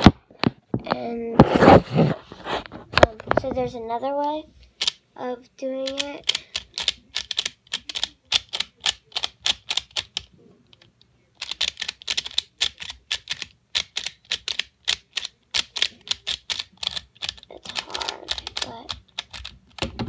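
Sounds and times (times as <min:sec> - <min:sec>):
plastic puzzle clicking: 0:04.7 - 0:05.0, 0:05.8 - 0:20.0.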